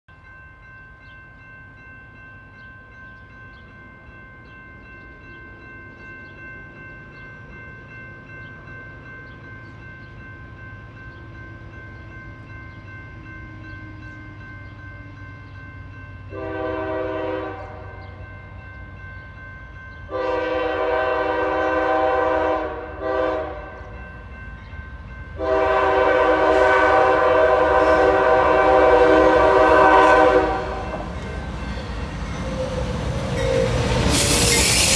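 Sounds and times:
train horn blasts: 16.3s - 18.2s, 20.1s - 24.0s, 25.4s - 31.1s.

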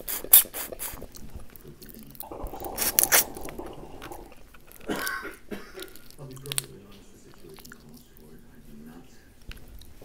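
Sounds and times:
wet sucking and slurping: 0.0s - 1.2s, 2.2s - 5.0s
shell cracking and snapping: 5.8s - 6.8s.

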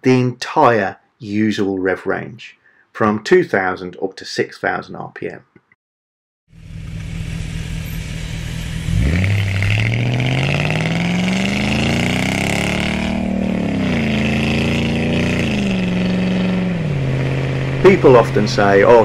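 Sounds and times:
car engine accelerating: 6.6s - 19.0s
wind and road noise: 6.6s - 19.0s.

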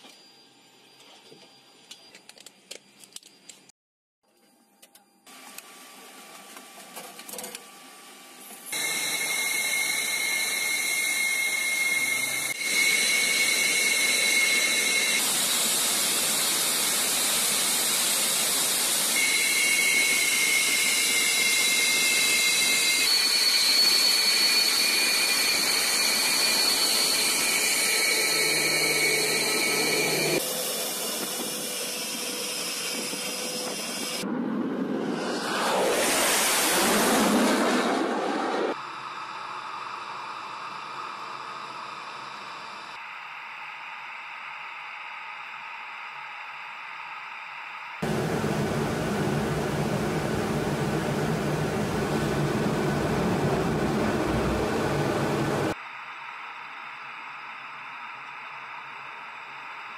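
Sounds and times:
jet engines hissing and whining: 7.9s - 59.9s
quiet cockpit sounds: 48.0s - 55.8s.

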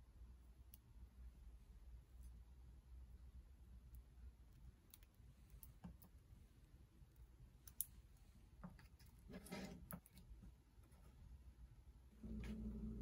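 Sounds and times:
soft scrape: 9.3s - 9.9s.

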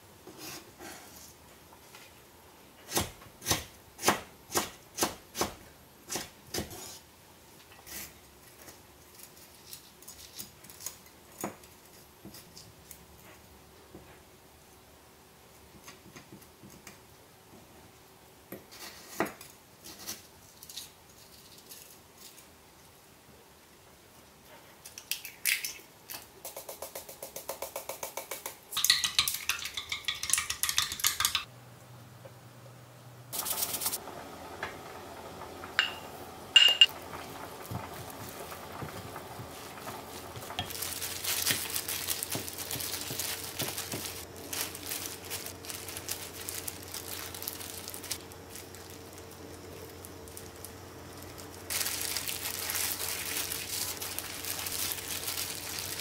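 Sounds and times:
frying hiss: 33.3s - 56.0s.

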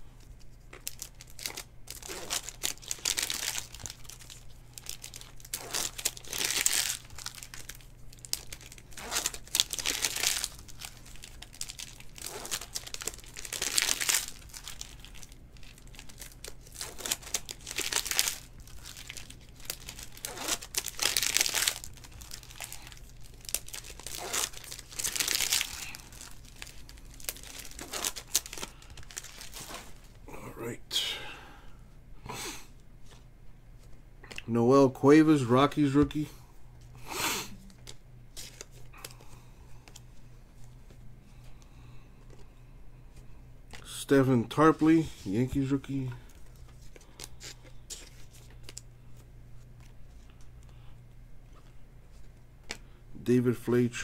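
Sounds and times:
foil wrappers crinkling and tearing: 0.5s - 30.2s, 44.7s - 48.9s.

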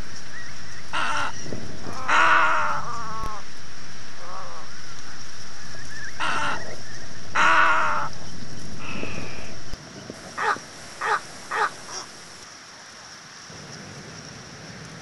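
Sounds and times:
steady high hiss: 0.0s - 15.0s
egret harsh croaking calls: 1.0s - 3.4s, 6.2s - 8.1s, 10.4s - 12.1s.

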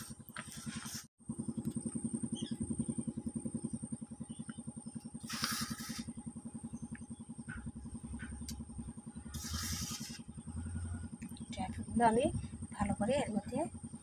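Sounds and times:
engine running with rapid pulse: 0.0s - 14.0s
short bursts of hiss: 5.2s - 6.1s, 9.3s - 10.2s.

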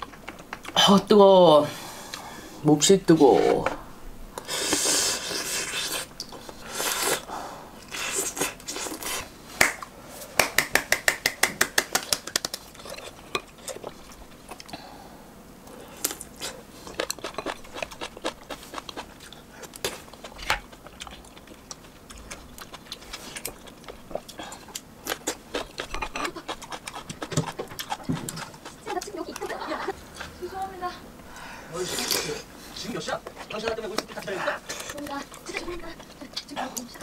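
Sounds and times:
person blowing on hot food: 4.4s - 9.3s.

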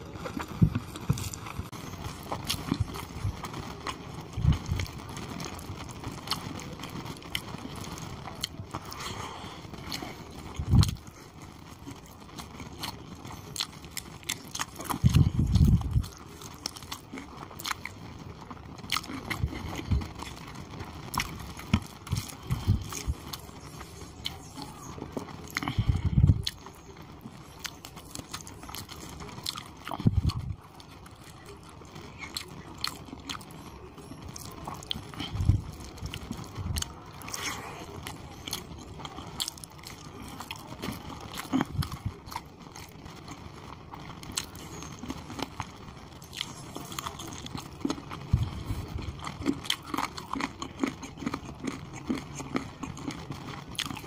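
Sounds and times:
wet chewing and lip-smacking: 0.2s - 4.9s, 9.8s - 11.1s, 18.9s - 20.4s, 27.5s - 30.5s, 46.2s - 54.0s.

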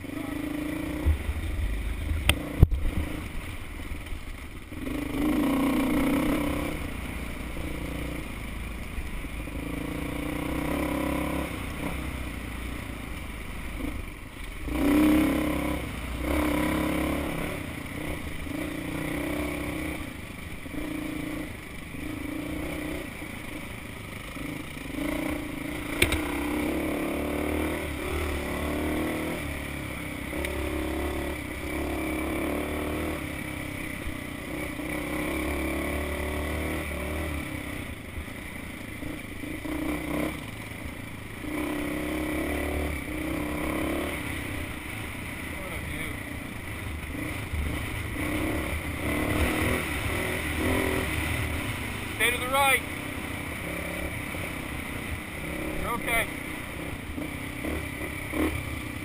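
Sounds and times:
motorcycle engine revving: 0.0s - 59.0s
sharp clicks: 25.9s - 26.3s.

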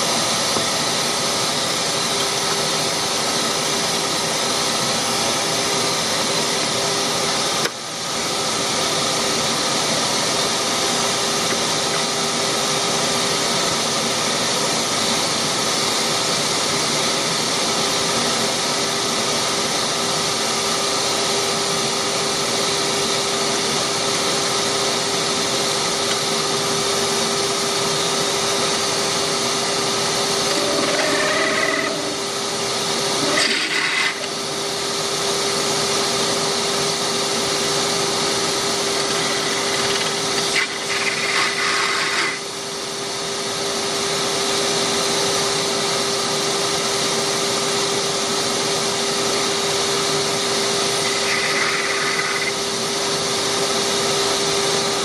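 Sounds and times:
wood lathe motor hum: 20.4s - 43.6s, 49.4s - 54.2s
cutting tool squealing: 30.2s - 32.4s, 33.1s - 34.4s, 39.0s - 42.5s, 50.9s - 52.7s.

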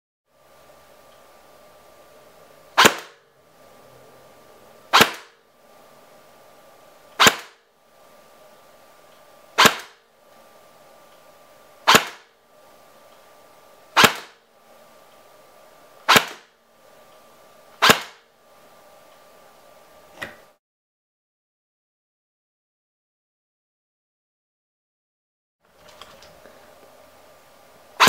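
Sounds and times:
airsoft gun sharp cracks: 2.8s - 3.2s, 4.9s - 5.4s, 7.2s - 7.6s, 9.6s - 10.0s, 11.8s - 12.3s, 14.0s - 14.4s, 16.0s - 16.5s, 17.8s - 18.2s.

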